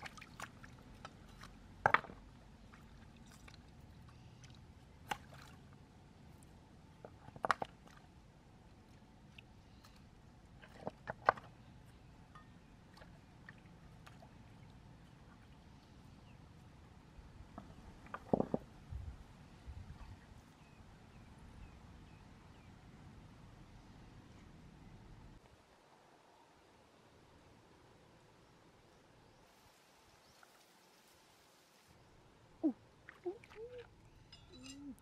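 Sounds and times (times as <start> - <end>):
wet stones clacking: 0.3 - 2.2, 17.6 - 18.7.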